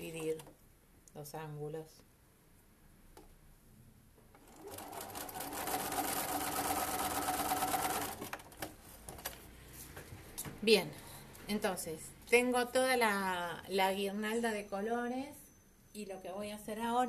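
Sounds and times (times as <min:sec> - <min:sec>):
sewing machine running: 0:04.4 - 0:08.7.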